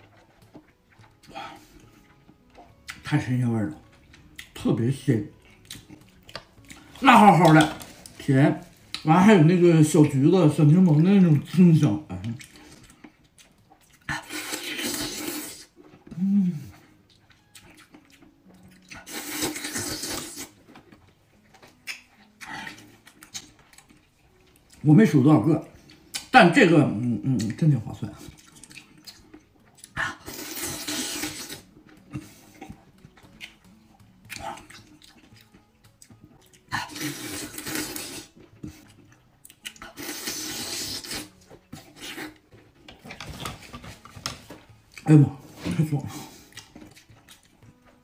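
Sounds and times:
wet chewing: 0:00.0 - 0:09.2, 0:10.8 - 0:24.8, 0:27.3 - 0:48.0
person slurping: 0:14.1 - 0:16.8, 0:19.0 - 0:20.6, 0:30.0 - 0:32.4, 0:36.7 - 0:38.8, 0:39.8 - 0:42.4
wet mouth chewing clicks: 0:21.6 - 0:24.1, 0:28.3 - 0:42.4
loud slurps: 0:30.2 - 0:31.6, 0:39.9 - 0:41.3.

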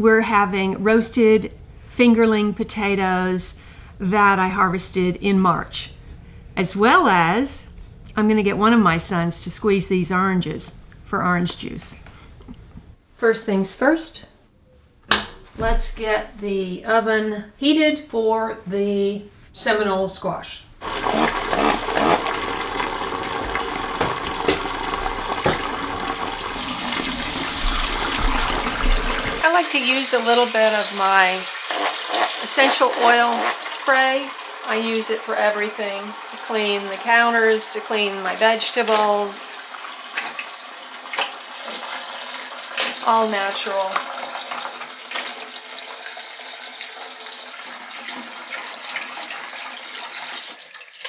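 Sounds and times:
faucet running into bowl: 0:20.8 - 0:51.0
water splashing: 0:20.8 - 0:51.0
tap water splashing into bowl: 0:23.3 - 0:29.4.

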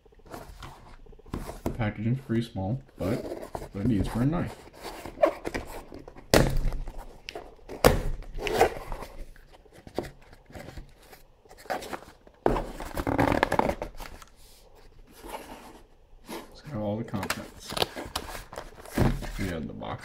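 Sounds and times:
cardboard rustling: 0:00.2 - 0:19.8
cardboard box knocks and scrapes: 0:18.8 - 0:19.5.

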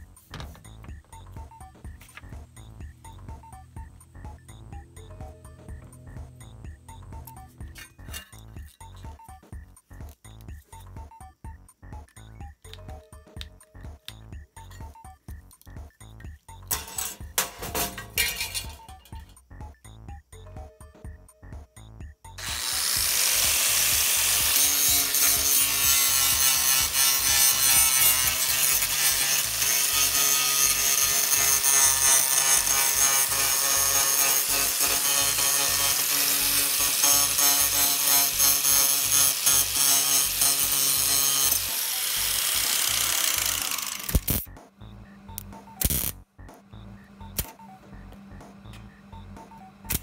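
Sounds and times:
angle grinder grinding metal: 0:16.7 - 0:19.3, 0:22.4 - 0:44.5
welding crackles: 0:43.4 - 0:44.5, 0:45.8 - 0:46.2.

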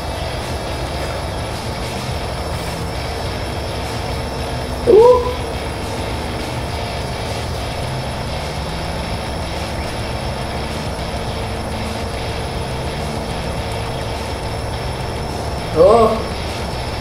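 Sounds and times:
low rumbling hum: 0:00.0 - 0:17.0
faint tone: 0:04.7 - 0:05.8
man's rising vocal sound: 0:04.8 - 0:05.6.

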